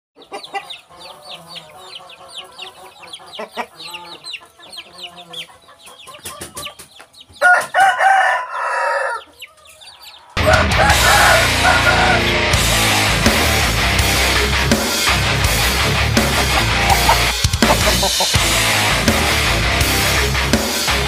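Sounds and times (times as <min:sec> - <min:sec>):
chicks peeping: 0:00.2 - 0:12.4, 0:16.1 - 0:18.6
hen clucking: 0:00.2 - 0:12.6, 0:15.9 - 0:18.7
rooster crowing: 0:07.4 - 0:12.4, 0:16.9 - 0:17.3.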